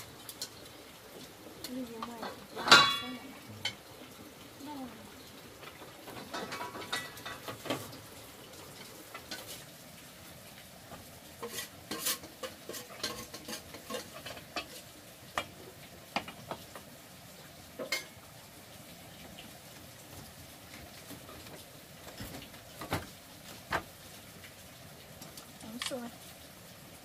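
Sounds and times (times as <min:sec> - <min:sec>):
food sizzling in a pan: 0:00.0 - 0:27.0
utensil clinking and scraping pan: 0:02.0 - 0:03.8, 0:06.0 - 0:08.0, 0:08.7 - 0:09.7, 0:11.4 - 0:15.5, 0:17.8 - 0:18.2.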